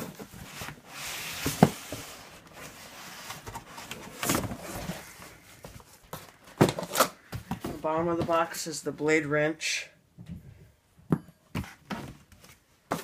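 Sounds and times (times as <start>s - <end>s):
cardboard scraping and rustling: 0.0s - 7.8s.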